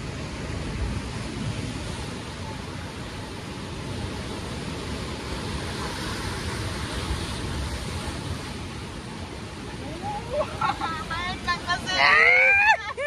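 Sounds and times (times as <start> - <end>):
surf: 0.0 - 13.0
river rapids rushing: 8.8 - 13.0.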